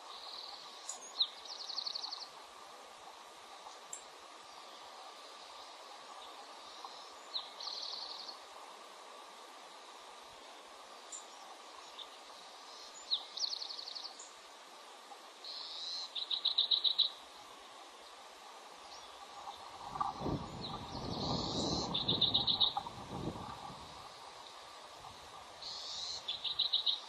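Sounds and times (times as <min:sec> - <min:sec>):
steady hiss: 0:00.0 - 0:27.0
eagle piping calls: 0:20.8 - 0:22.9.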